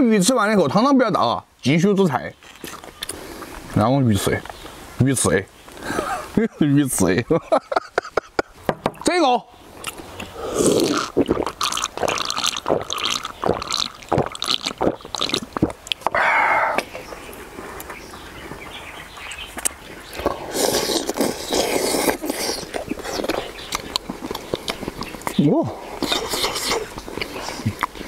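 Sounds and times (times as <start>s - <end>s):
chewing: 2.4s - 3.7s, 9.8s - 16.1s, 19.5s - 28.0s
gulping from a drink can: 9.9s - 16.9s, 20.2s - 28.0s.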